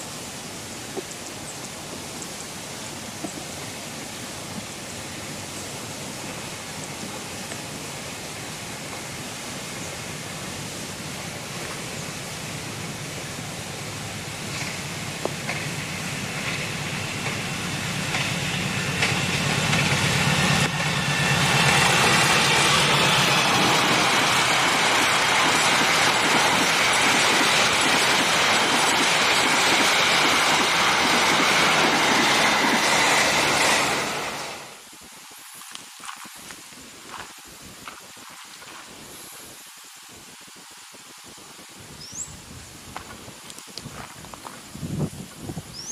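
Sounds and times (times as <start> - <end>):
train wheels rolling on rails: 3.0 - 34.8
locomotive engine drone: 6.5 - 34.8.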